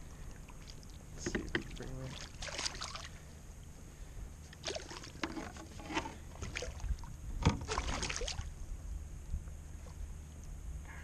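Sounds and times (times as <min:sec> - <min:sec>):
fish splashing in water: 0:02.1 - 0:03.2, 0:04.6 - 0:05.2, 0:07.6 - 0:08.5.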